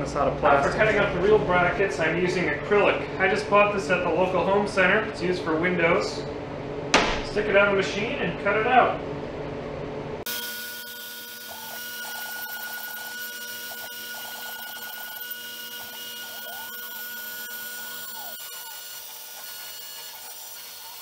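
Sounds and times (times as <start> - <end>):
router high whine: 10.3 - 21.0
stepper motors gliding tones: 10.3 - 21.0.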